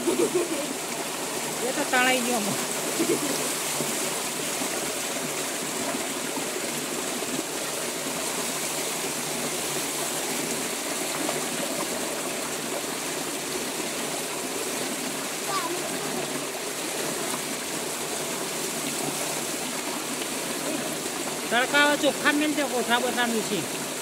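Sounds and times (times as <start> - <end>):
water splashing on concrete: 14.9 - 24.0.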